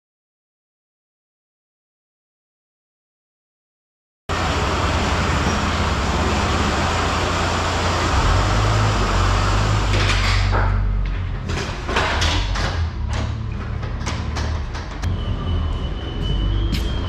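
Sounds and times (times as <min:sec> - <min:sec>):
heavy truck rumble and rush: 0:04.3 - 0:17.0
sharp knocks and clatter: 0:09.8 - 0:15.1.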